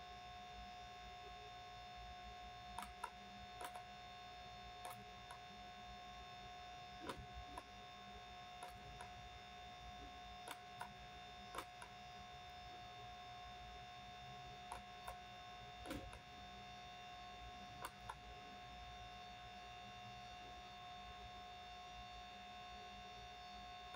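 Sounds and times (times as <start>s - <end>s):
electrical hum with whine: 0.0s - 23.9s
computer mouse clicks: 2.8s - 3.9s, 4.8s - 5.4s, 7.0s - 7.7s, 8.6s - 9.2s, 10.4s - 12.0s, 14.6s - 15.2s, 15.8s - 16.2s, 17.8s - 18.3s.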